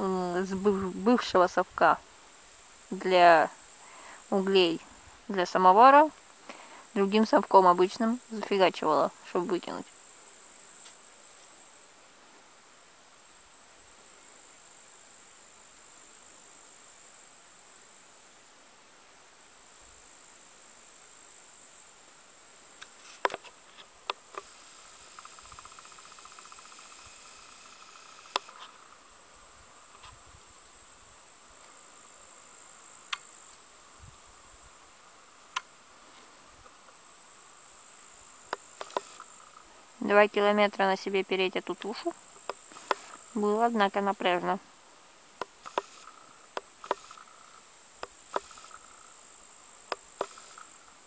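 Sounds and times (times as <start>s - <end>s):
insects chirring: 0.0s - 18.6s, 19.2s - 51.0s
sharp clicks: 33.1s - 33.3s, 38.5s - 39.3s, 45.4s - 47.3s, 48.0s - 48.9s, 49.9s - 50.7s.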